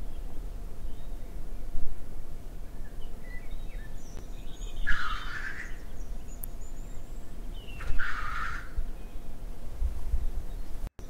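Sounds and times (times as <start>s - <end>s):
faint small bird chirps: 2.7s - 9.3s.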